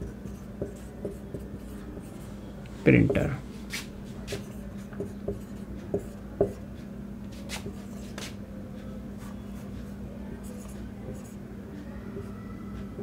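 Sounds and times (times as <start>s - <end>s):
marker writing on whiteboard: 0.0s - 2.3s, 3.0s - 6.6s, 7.3s - 8.4s
steady low hum: 0.0s - 13.0s.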